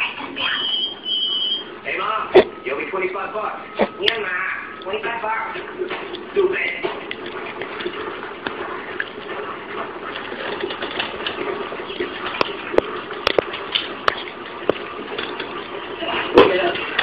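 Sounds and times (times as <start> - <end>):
dog gnawing on a chew: 3.7 - 17.0.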